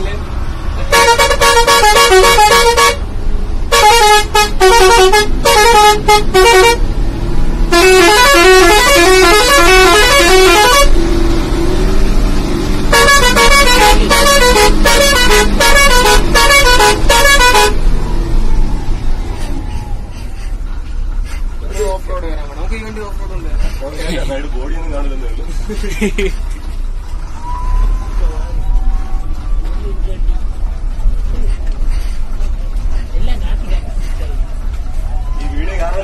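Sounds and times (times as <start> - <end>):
bus engine humming: 0.0 - 36.0
bus musical horn bursts: 0.8 - 6.9, 7.6 - 11.0, 12.9 - 17.8.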